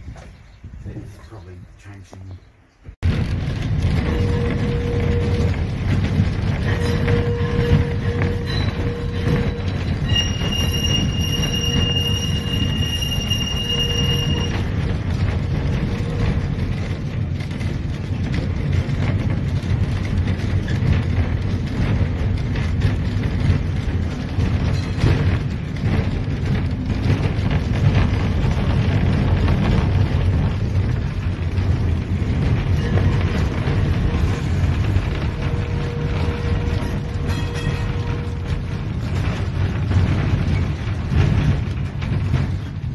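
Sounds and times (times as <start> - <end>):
tram wheels and motor rumbling: 0.0 - 42.9
high steady squeal: 6.6 - 14.9.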